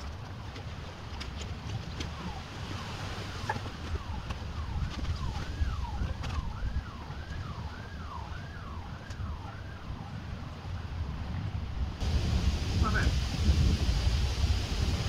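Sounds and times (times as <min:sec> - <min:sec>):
wind rumble on microphone: 0:00.0 - 0:15.0
emergency siren wailing: 0:02.1 - 0:10.6.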